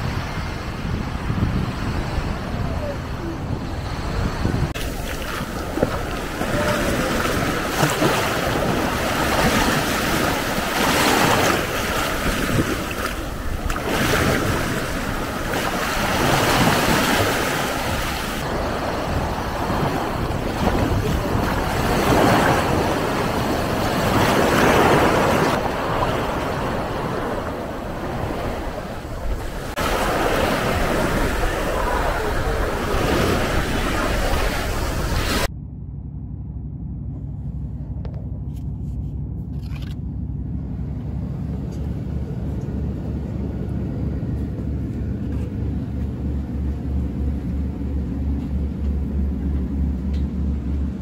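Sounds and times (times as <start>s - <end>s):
waves breaking on a beach: 0.0s - 35.5s.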